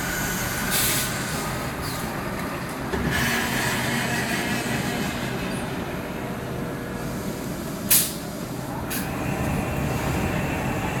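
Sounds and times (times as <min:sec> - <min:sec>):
hiss of released air: 0:00.1 - 0:01.2, 0:07.0 - 0:08.2.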